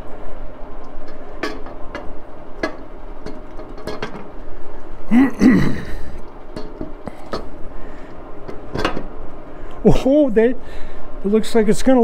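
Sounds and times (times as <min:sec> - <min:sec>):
metal engine case clicks and knocks: 0:01.0 - 0:04.4, 0:06.5 - 0:07.6, 0:08.4 - 0:09.2.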